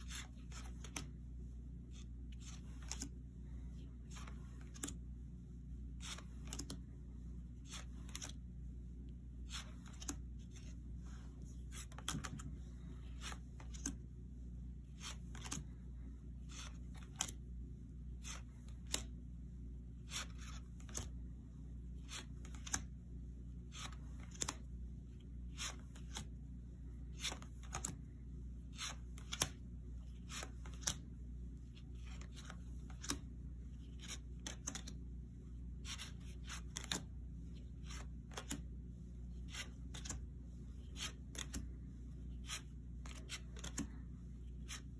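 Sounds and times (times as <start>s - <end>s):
steady low hum: 0.0s - 44.9s
cards snapping down: 42.5s - 43.9s.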